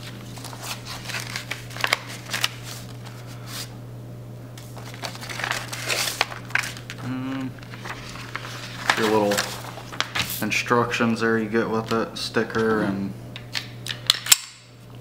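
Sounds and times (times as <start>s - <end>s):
paper and cardboard crinkling: 0.0s - 3.7s, 4.6s - 10.5s.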